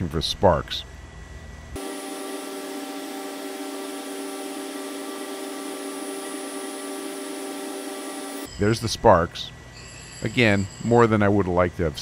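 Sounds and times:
surface grinder running: 0:01.8 - 0:08.5.

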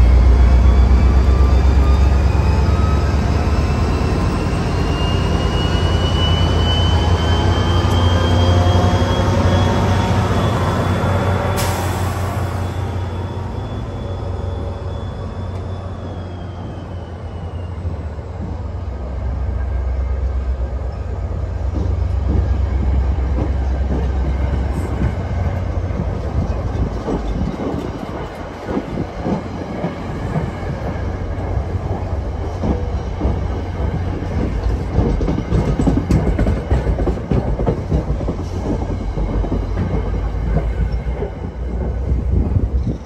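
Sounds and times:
diesel locomotive engine drone: 0:00.0 - 0:43.0
train wheels clattering over rail joints: 0:20.9 - 0:43.0.

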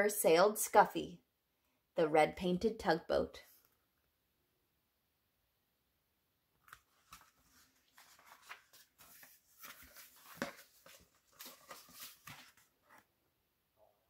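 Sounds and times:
book pages turning: 0:06.6 - 0:13.1
soft paper rustles: 0:06.6 - 0:13.1.

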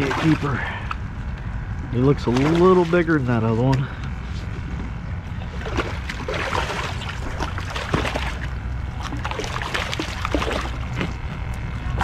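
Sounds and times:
fish splashing in water: 0:05.5 - 0:11.2.

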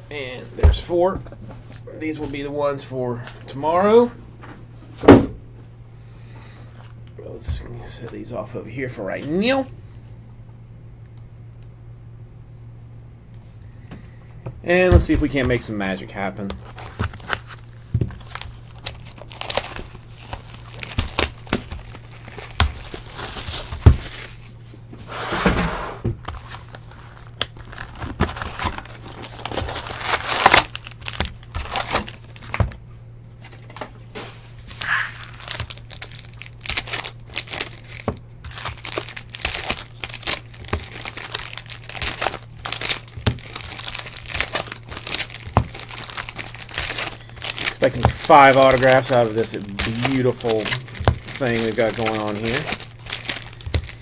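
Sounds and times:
wrapping and cardboard crinkling: 0:15.0 - 0:24.8, 0:26.2 - 0:32.8, 0:33.4 - 0:54.0.

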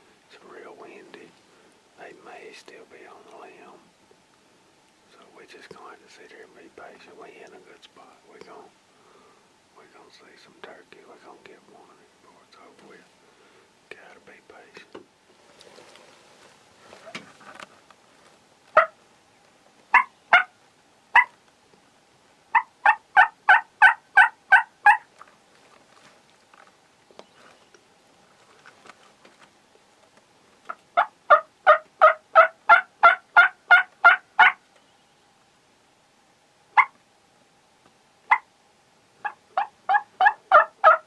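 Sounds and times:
turkey yelping: 0:18.8 - 0:19.0, 0:19.9 - 0:20.5, 0:21.1 - 0:21.4, 0:22.5 - 0:25.1, 0:30.7 - 0:34.6, 0:36.8 - 0:37.0, 0:38.3 - 0:38.5, 0:39.2 - 0:41.0.

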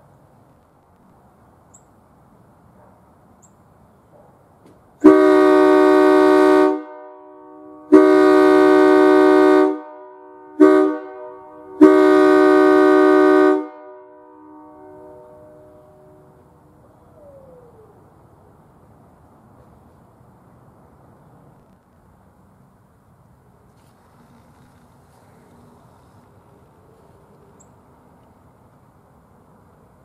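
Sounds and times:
locomotive air horn blasts: 0:05.0 - 0:16.4.

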